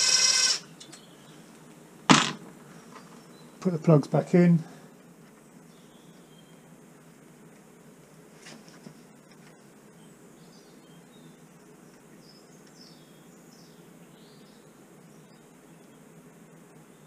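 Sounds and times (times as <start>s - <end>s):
workshop background hiss: 0.0s - 10.4s.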